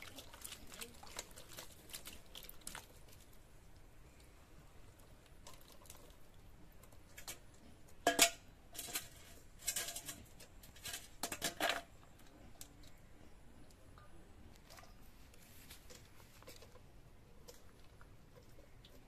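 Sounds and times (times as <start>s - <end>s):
kitchen utensils scraping and clattering: 8.0s - 11.9s.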